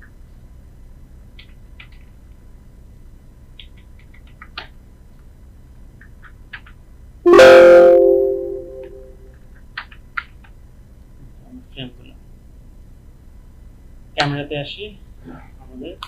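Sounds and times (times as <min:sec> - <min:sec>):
loud two-pitch tone: 0:07.3 - 0:09.2.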